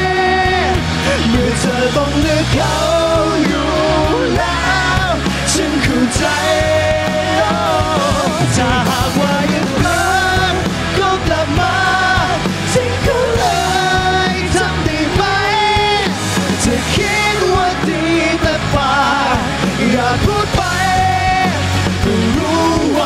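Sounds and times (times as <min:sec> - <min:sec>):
bass guitar: 0:00.0 - 0:23.0
drum kit: 0:00.0 - 0:23.0
electric guitar: 0:00.0 - 0:23.0
man singing lead: 0:00.0 - 0:23.0.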